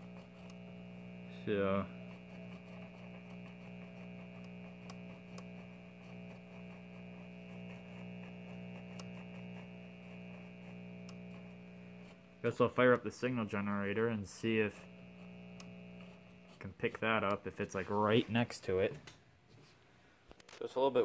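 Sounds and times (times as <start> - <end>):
radio mains hum: 0.0 - 19.2.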